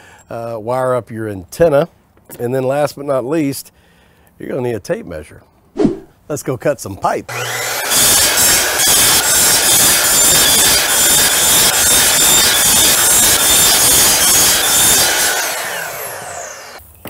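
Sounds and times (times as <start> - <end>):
miter saw cutting plastic pipe: 7.3 - 16.8.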